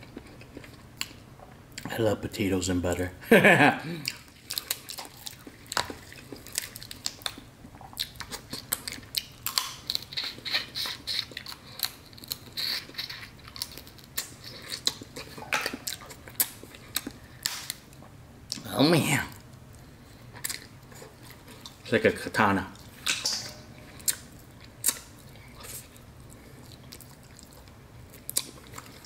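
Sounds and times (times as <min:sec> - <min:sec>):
wet chewing: 0:04.0 - 0:18.6, 0:23.9 - 0:29.0.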